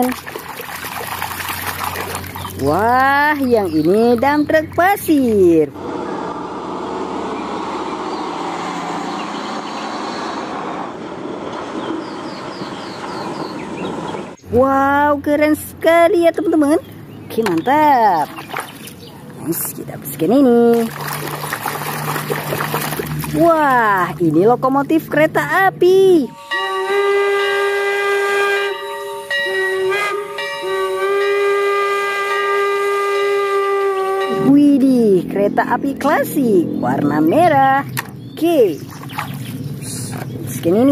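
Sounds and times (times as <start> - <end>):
truck diesel engine droning: 1.2 - 18.0, 19.0 - 40.9
steam locomotive whistle: 26.3 - 34.5.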